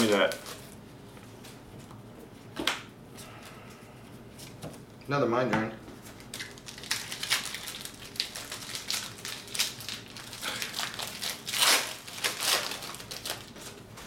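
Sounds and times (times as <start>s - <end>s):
foil wrappers crinkling: 0.0s - 0.8s, 6.0s - 13.9s.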